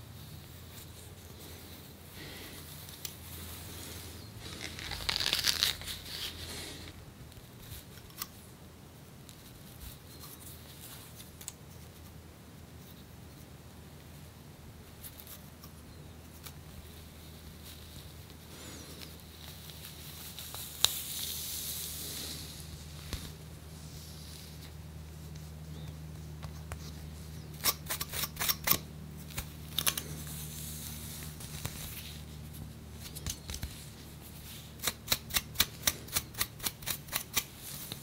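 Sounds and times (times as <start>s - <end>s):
scratching at flaky skin: 0.4s - 6.9s.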